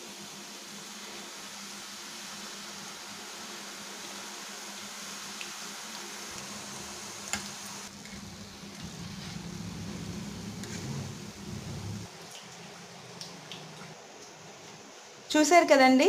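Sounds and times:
hot oil sizzling: 0.0s - 12.1s
spoon turning food in oil: 6.4s - 11.8s.

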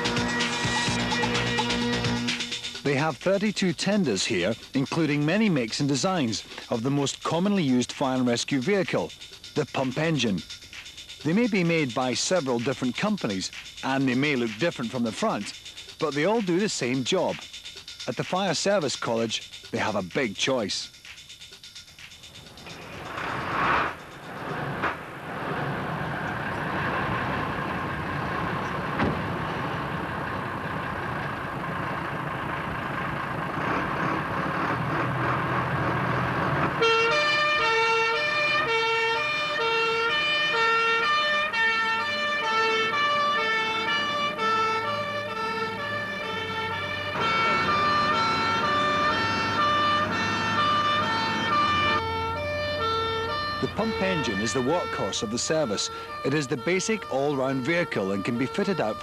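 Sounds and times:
fire engine rumbling: 0.0s - 59.0s
two-tone siren: 36.2s - 59.0s.

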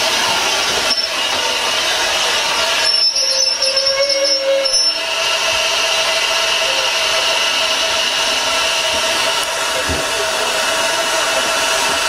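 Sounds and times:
steam hissing from locomotive: 0.0s - 12.0s
train brakes squealing: 0.8s - 1.7s, 2.6s - 5.1s, 6.6s - 7.3s.

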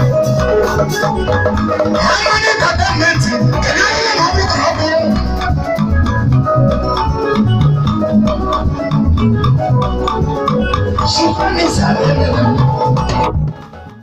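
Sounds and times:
heavy bass: 0.0s - 13.9s
organ keyboard band music: 0.0s - 14.0s
steady drum beat: 10.8s - 13.7s.

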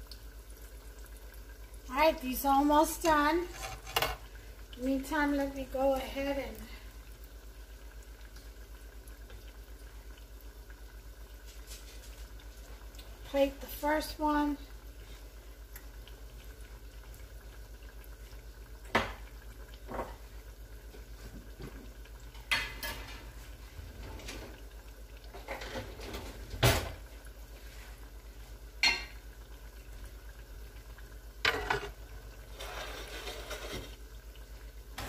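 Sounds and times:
dishes and utensils clanking: 3.5s - 4.2s.

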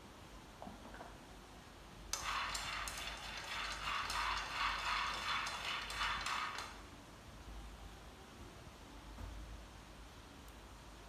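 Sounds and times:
food frying in a pan: 2.2s - 6.7s.

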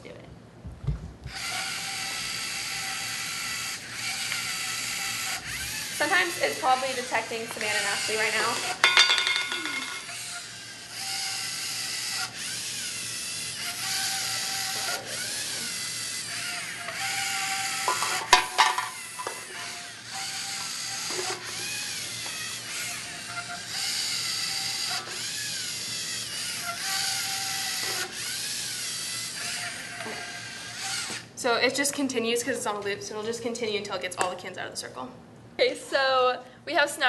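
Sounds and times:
robot servo motors whirring: 1.3s - 8.8s, 9.6s - 18.3s, 18.9s - 31.3s.

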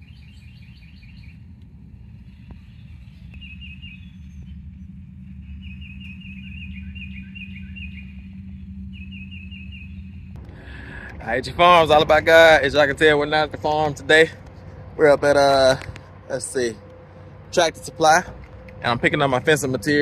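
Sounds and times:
songbird chirping: 0.0s - 1.5s, 2.3s - 4.8s, 5.4s - 10.3s
steady low rumble: 0.0s - 20.0s.

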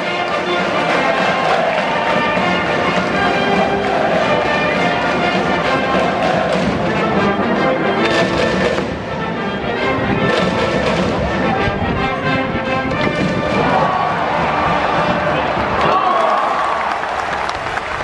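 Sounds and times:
brass band playing: 0.0s - 15.7s
crowd voices: 0.0s - 18.0s
heavy drum beats: 0.2s - 7.3s, 10.0s - 12.0s, 13.0s - 16.2s.

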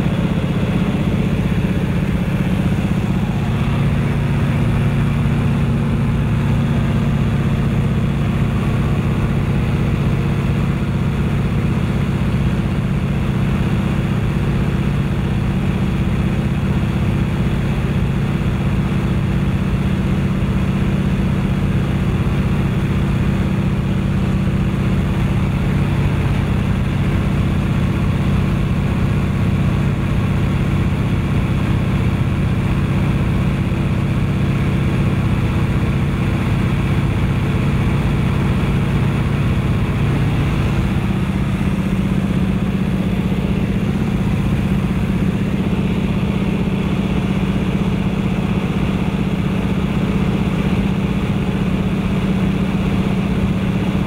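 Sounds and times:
airflow rushing: 0.0s - 7.2s, 39.2s - 48.2s
propeller plane engine droning: 0.0s - 54.0s.

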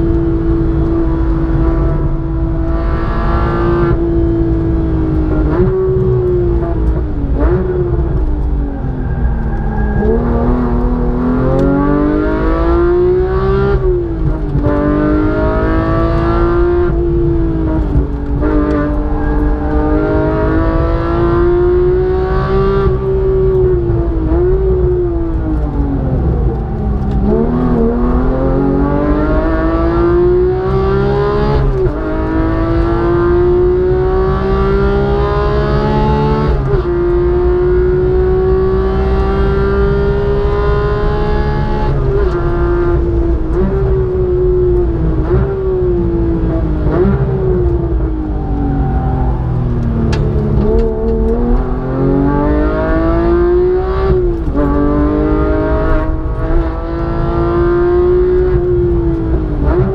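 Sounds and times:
car engine revving and shifting: 0.0s - 59.9s.

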